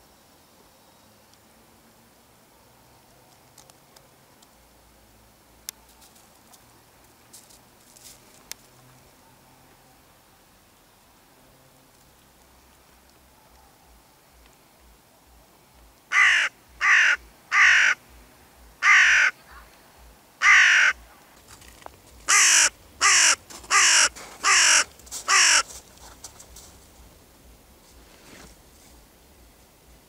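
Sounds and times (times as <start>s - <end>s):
crow cawing: 16.1s - 18.0s, 18.8s - 19.4s, 20.4s - 21.0s, 22.3s - 25.8s.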